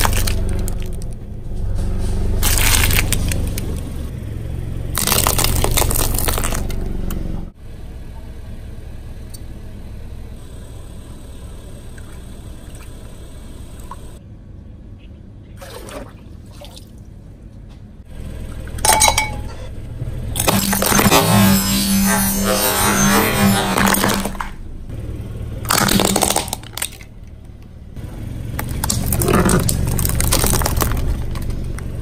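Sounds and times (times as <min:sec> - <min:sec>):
tyre crunching plastic packs: 0:00.0 - 0:01.2, 0:02.4 - 0:03.9, 0:05.0 - 0:06.8, 0:25.7 - 0:27.1, 0:28.5 - 0:31.8
car engine humming: 0:00.0 - 0:15.6, 0:17.1 - 0:32.0
glass clinks: 0:18.8 - 0:19.7.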